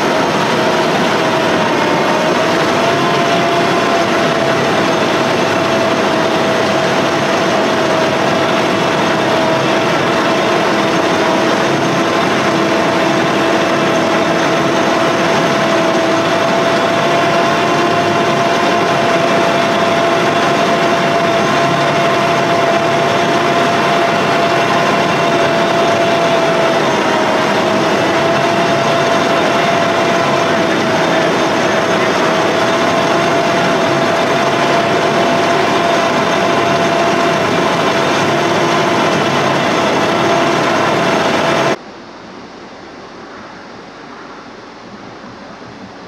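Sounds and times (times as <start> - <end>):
truck engine running: 0.0 - 41.8
steady whine: 0.0 - 46.0.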